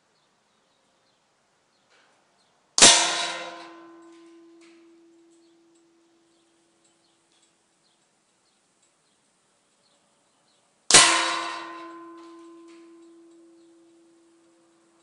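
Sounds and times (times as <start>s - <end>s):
metal ringing: 2.8s - 7.6s, 10.9s - 15.0s
pellet clanging on metal: 10.9s - 14.1s.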